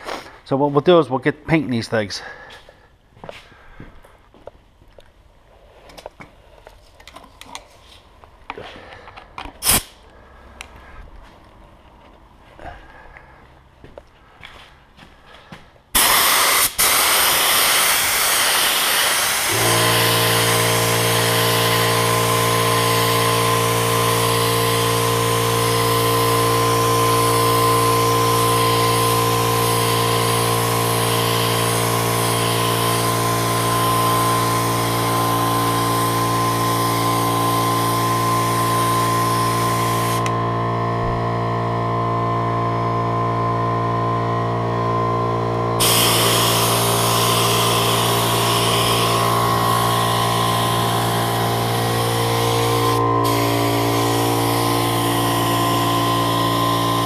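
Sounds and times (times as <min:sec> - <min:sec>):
air compressor humming: 0:08.3 - 0:57.0
paint spray gun hissing: 0:09.6 - 0:10.0, 0:16.0 - 0:40.4, 0:45.8 - 0:57.0.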